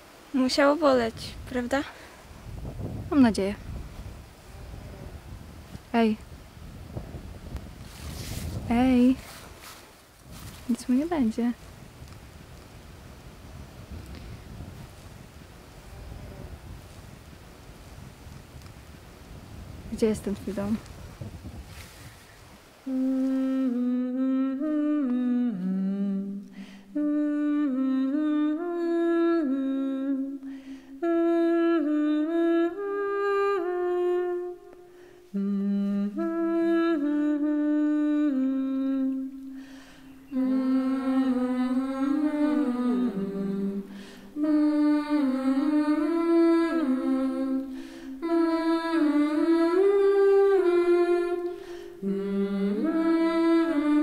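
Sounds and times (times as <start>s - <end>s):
person humming a slow melody: 3.7s - 6.2s, 13.4s - 18.1s, 22.8s - 54.0s.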